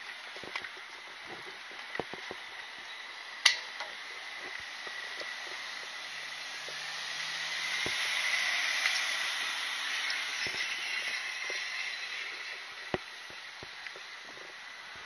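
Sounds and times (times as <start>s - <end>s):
street traffic: 0.0s - 15.0s
truck driving past: 4.6s - 12.7s.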